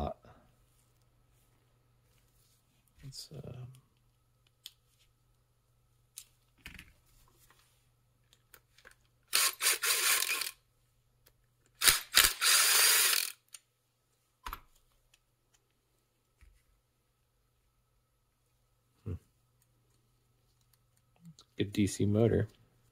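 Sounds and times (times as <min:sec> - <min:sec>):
cordless drill spinning out screws: 0:09.3 - 0:10.6, 0:11.8 - 0:13.5.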